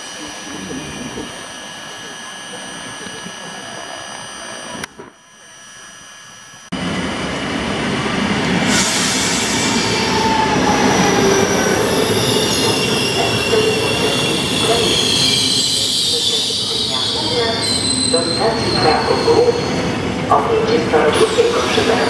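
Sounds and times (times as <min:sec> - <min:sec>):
high wavering squealing: 0:09.2 - 0:20.0.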